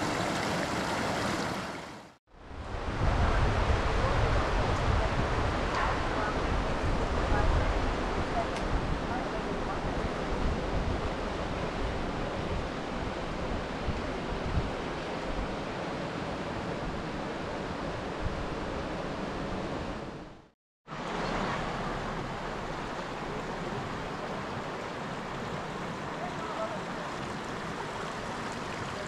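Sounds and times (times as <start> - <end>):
water rushing over rapids: 0.0 - 20.2, 20.9 - 29.0
wind buffeting microphone: 2.4 - 15.6.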